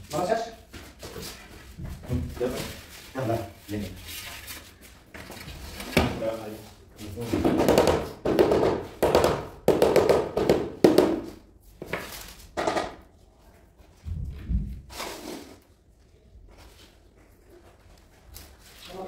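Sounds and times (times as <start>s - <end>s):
scraping on a tile floor: 14.1s - 19.0s.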